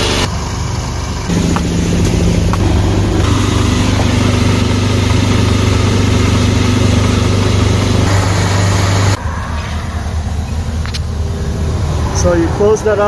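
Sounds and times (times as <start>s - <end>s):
pump humming: 0.0s - 9.2s.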